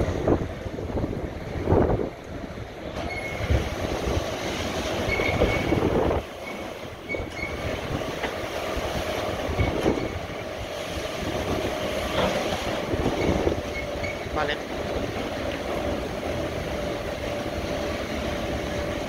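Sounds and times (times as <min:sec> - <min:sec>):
car wash brushes rumbling and swishing: 0:00.0 - 0:19.0
high squeaks: 0:03.0 - 0:03.5, 0:05.0 - 0:07.7.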